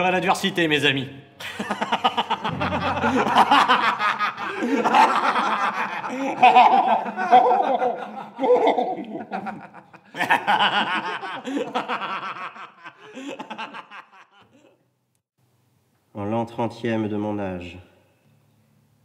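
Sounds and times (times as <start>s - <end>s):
men laughing: 1.4s - 14.8s.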